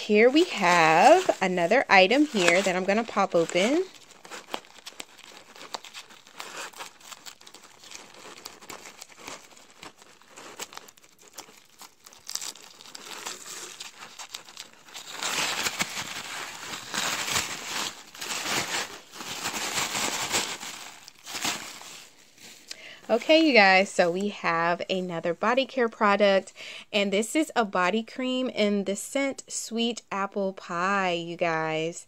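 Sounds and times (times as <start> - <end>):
paper rustling and crinkling: 0.1 - 23.4.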